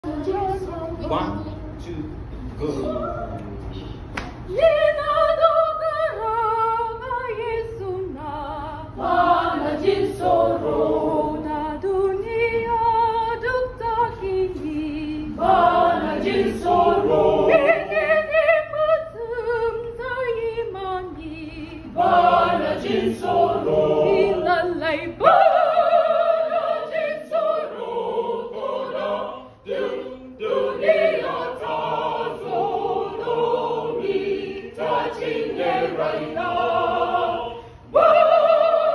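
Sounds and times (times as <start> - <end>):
children's choir singing: 8.1 - 12.8, 14.5 - 19.5, 20.9 - 38.9.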